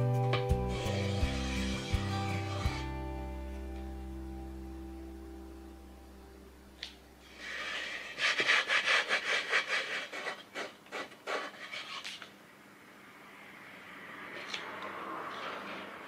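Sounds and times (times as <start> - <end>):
hand rubbing rough plywood: 0.7 - 2.9, 7.3 - 12.0.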